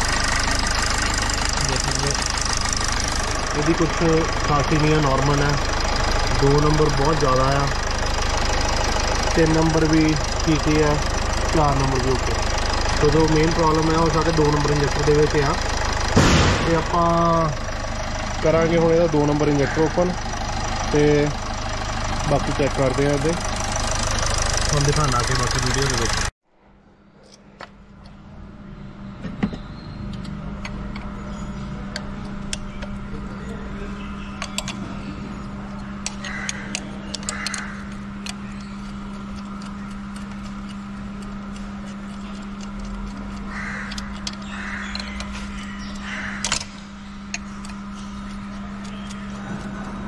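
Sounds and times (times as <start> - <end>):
steady hum: 0.0 - 50.0
crows cawing: 19.4 - 20.6, 36.1 - 38.2, 43.4 - 46.6.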